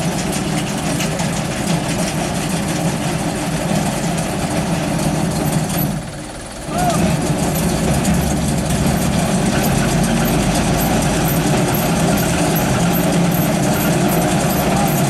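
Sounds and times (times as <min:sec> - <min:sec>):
diesel truck engine idling: 0:03.2 - 0:15.0.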